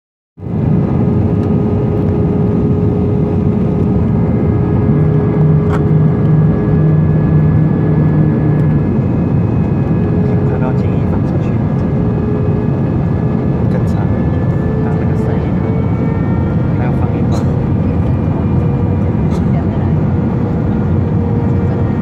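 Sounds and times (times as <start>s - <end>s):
airplane cabin engine rush: 0.4s - 22.0s
low hum: 0.4s - 22.0s
steady cabin hum: 0.5s - 22.0s.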